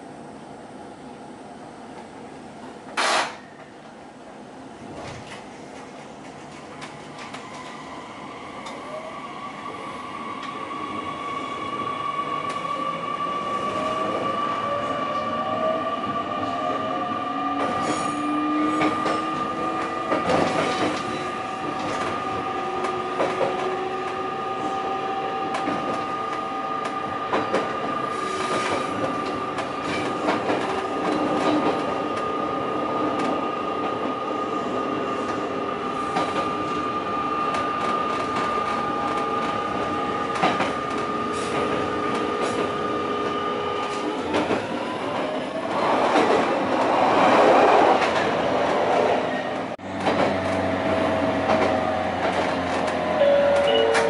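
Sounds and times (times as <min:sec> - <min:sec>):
rail joint clicks: 0:01.9 - 0:07.9, 0:08.6 - 0:08.9, 0:17.6 - 0:24.8, 0:25.4 - 0:32.3, 0:36.1 - 0:54.0
train wheels squealing: 0:28.1 - 0:29.0.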